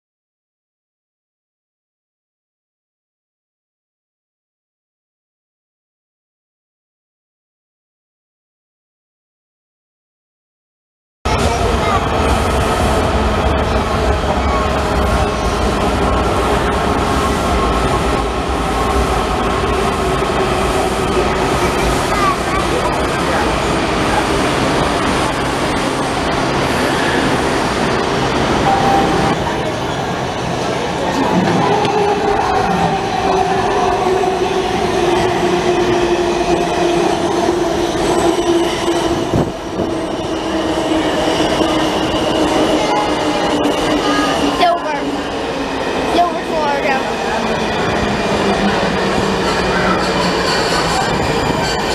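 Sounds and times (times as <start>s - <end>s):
subway train rumbling past: 11.3s - 51.9s
train whine: 11.3s - 51.9s.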